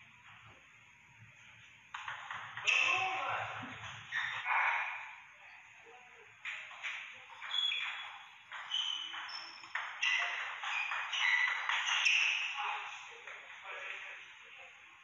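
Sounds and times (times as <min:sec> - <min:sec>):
ball bouncing on table: 0:01.9 - 0:03.1, 0:06.4 - 0:12.4
table tennis ball hits: 0:01.9 - 0:03.2, 0:07.8 - 0:12.5
short high squeaks: 0:07.5 - 0:12.6.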